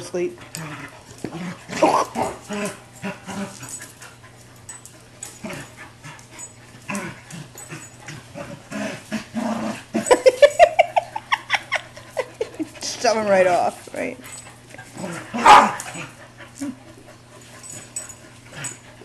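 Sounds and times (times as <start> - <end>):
dogs play-fighting: 0.0 - 19.0
dog barking rapidly: 15.4 - 15.8.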